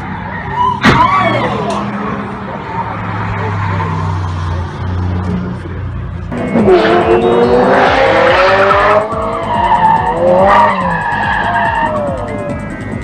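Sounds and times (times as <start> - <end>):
car tyres screeching: 0.0 - 13.0
car engine revving: 1.4 - 13.0.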